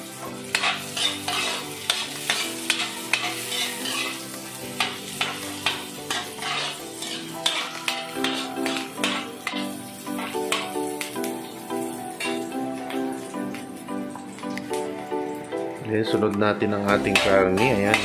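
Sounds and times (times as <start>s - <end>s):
aromatics sizzling in hot oil: 0.0s - 15.8s, 16.8s - 18.0s
metal ladle scraping a wok: 0.4s - 10.7s, 12.2s - 12.4s.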